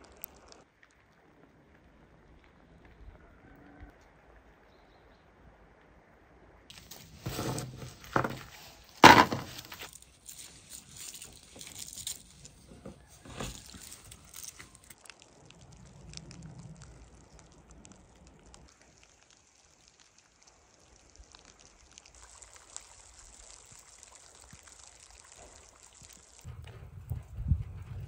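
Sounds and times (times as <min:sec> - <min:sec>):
handling sounds: 0:06.7 - 0:15.0.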